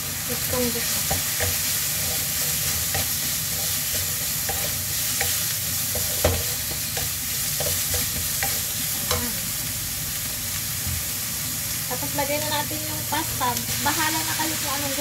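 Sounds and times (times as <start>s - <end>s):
food sizzling: 0.0s - 15.0s
wooden spatula scraping wok: 0.8s - 9.2s.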